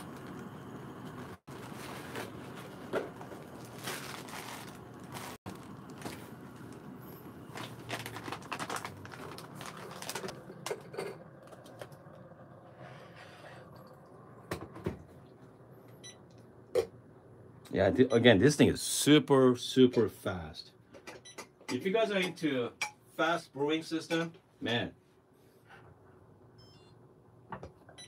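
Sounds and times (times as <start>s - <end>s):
paper filter rustling: 1.5s - 6.8s, 7.5s - 10.5s.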